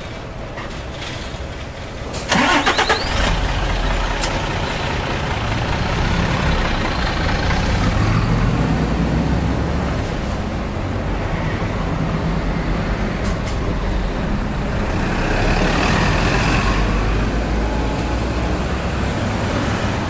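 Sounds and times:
bus engine rumbling: 0:00.0 - 0:20.0
engine starter cranking: 0:02.2 - 0:04.5.

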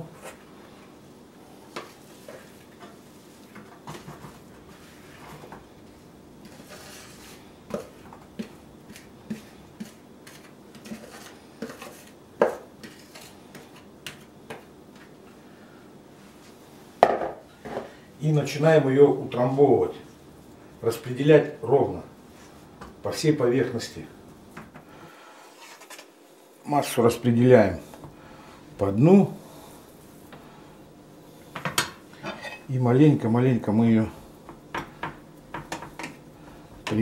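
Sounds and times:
spatula scraping plastic bowl: 0:06.4 - 0:14.3.

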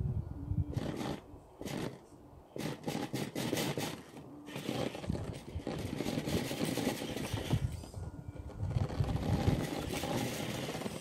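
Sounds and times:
toy car motor whirring: 0:00.7 - 0:11.0
tyres scraping on obstacle: 0:02.6 - 0:07.9, 0:08.7 - 0:11.0.

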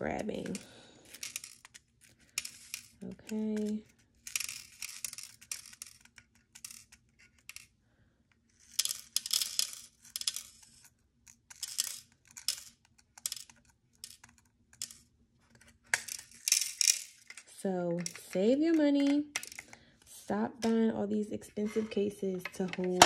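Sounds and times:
rhinestones clicking in plastic box: 0:00.1 - 0:07.7, 0:08.6 - 0:15.1, 0:15.9 - 0:19.8.

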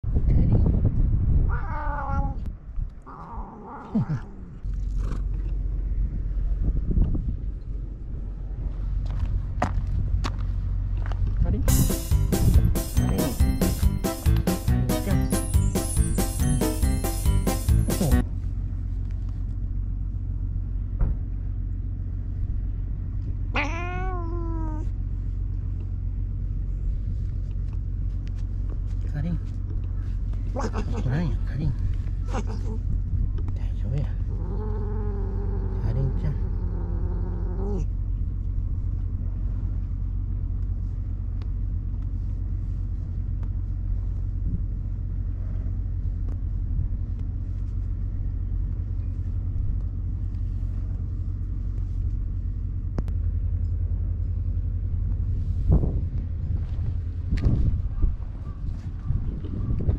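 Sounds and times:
low rumble: 0:00.0 - 0:59.9
cat meowing: 0:01.4 - 0:04.3, 0:23.5 - 0:24.9, 0:30.5 - 0:31.1, 0:32.2 - 0:32.9.

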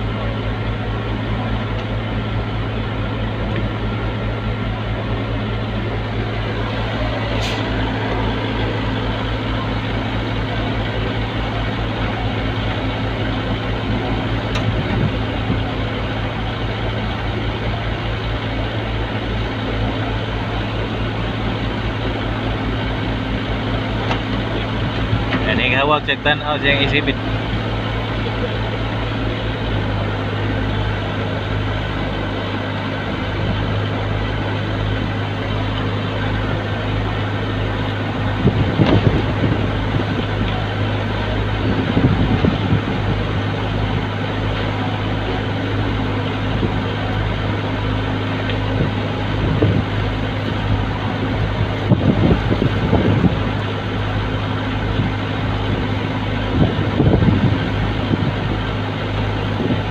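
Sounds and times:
truck diesel engine idling: 0:00.0 - 0:59.9
wind gusts on microphone: 0:38.2 - 0:43.6, 0:48.7 - 0:53.7, 0:54.9 - 0:58.8.

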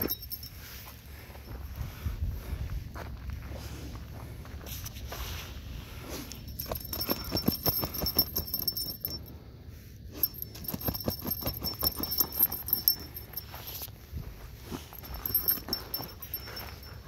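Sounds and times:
light metallic jingle: 0:00.0 - 0:02.1, 0:06.1 - 0:17.0
dog digging in gravelly soil: 0:03.4 - 0:08.5.

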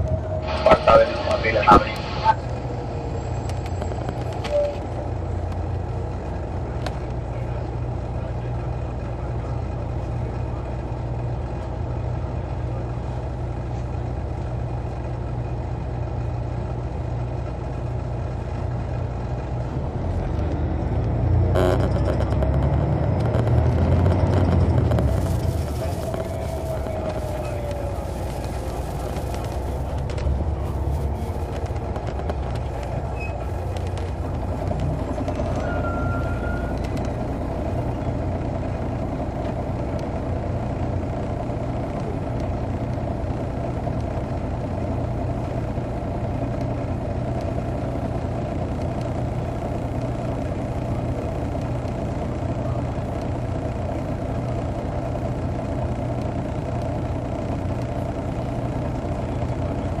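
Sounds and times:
bus engine running: 0:00.0 - 1:00.0
high squeak: 0:35.4 - 0:36.8.

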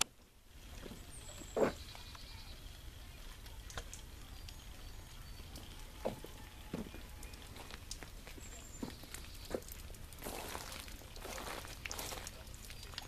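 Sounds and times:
soft footsteps outdoors: 0:00.0 - 0:13.0.

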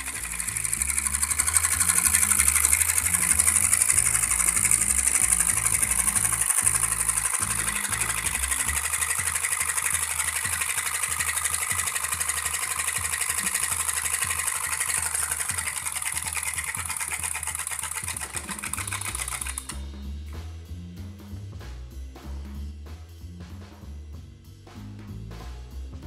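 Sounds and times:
stirling engine clattering: 0:00.0 - 0:19.9.

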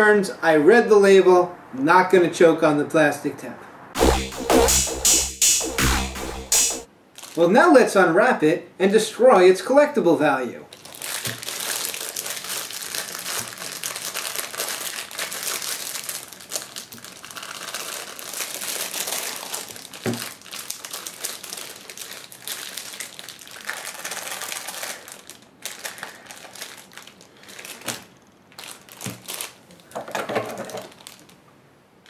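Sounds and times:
plastic packaging crinkling: 0:07.1 - 0:07.4, 0:10.7 - 0:31.4.

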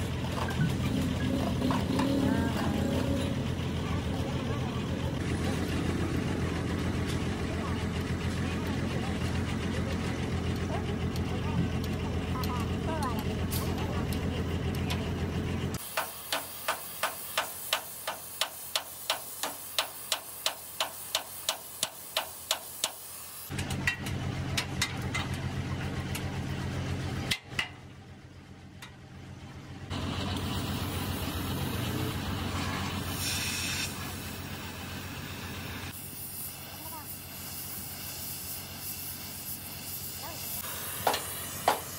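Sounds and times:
hammer striking metal: 0:41.0 - 0:41.9.

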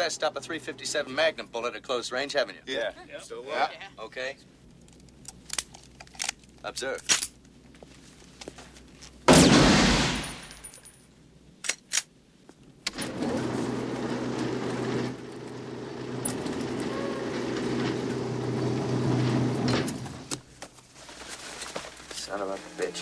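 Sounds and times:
electric motor hum: 0:13.1 - 0:20.3.

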